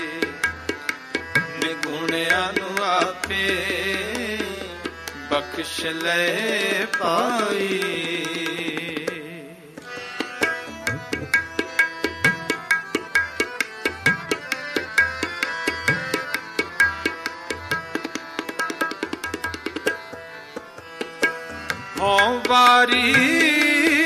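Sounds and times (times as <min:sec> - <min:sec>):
harmonium held notes: 0:00.0 - 0:08.6, 0:09.7 - 0:24.0
tabla drumming: 0:00.0 - 0:24.0
person singing: 0:01.6 - 0:09.7, 0:22.0 - 0:24.0.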